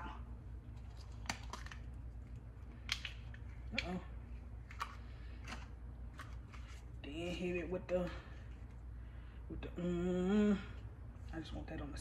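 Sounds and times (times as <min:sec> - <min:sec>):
low steady hum: 0:00.0 - 0:12.0
plastic cups clicking and crackling: 0:00.7 - 0:06.9.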